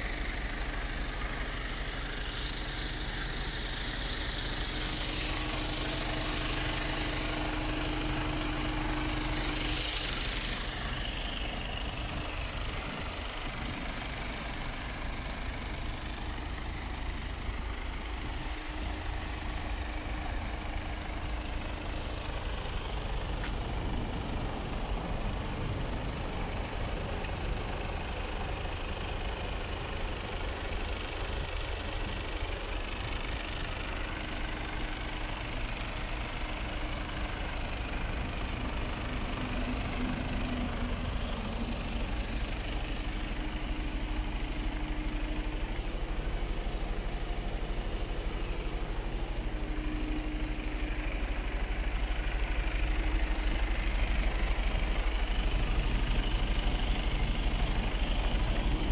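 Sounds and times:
diesel engine idling: 0.0 - 58.9.

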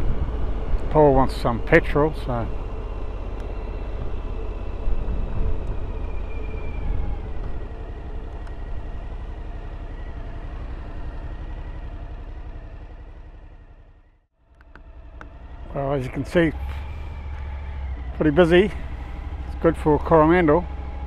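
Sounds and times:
low wind rumble: 0.0 - 21.0
motorcycle engine running: 7.2 - 21.0.

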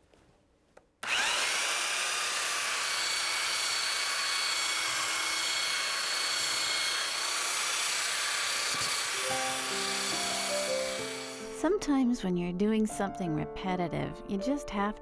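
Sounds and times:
belt sander whining: 1.0 - 11.7.

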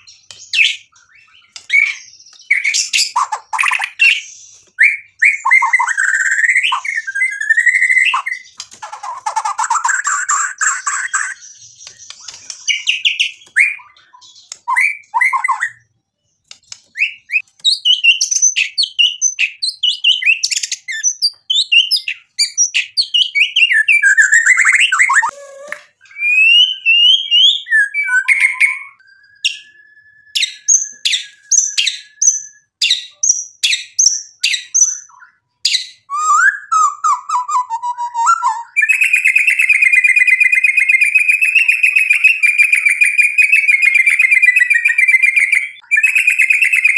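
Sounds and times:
bird singing whistled phrases: 0.0 - 46.9
bird clicks: 16.4 - 17.1.

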